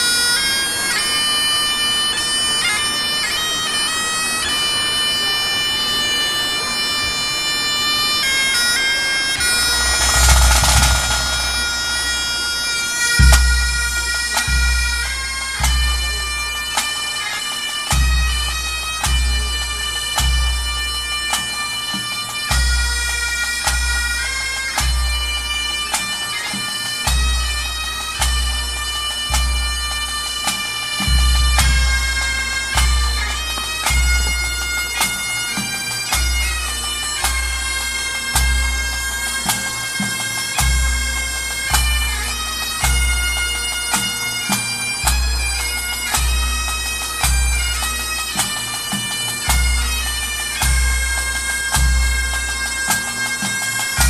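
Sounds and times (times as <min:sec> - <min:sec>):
bagpipes playing: 0:00.0 - 0:54.0
bass drum beats: 0:09.6 - 0:12.5.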